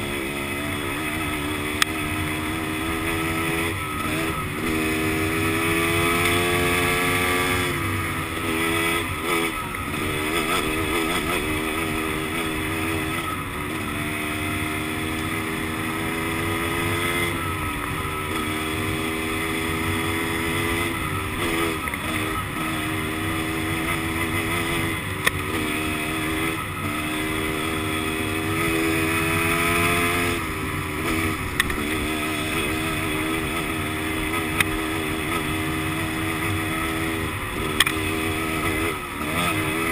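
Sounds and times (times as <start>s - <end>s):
dirt bike engine revving: 0.0s - 39.9s
sharp ticks: 37.7s - 38.0s.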